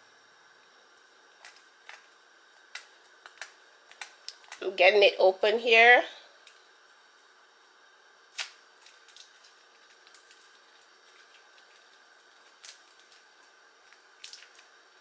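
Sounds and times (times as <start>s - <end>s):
wrapper crinkling: 8.3s - 15.0s.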